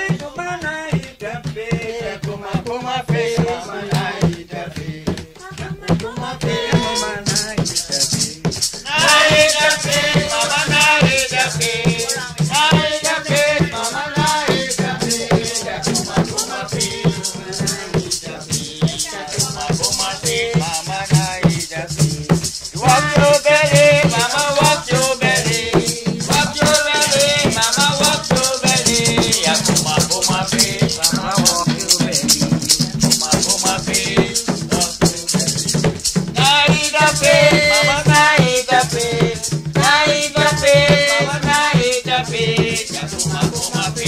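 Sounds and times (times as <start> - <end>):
fast steady percussion: 0.0 - 44.0
person singing folk song: 0.0 - 44.0.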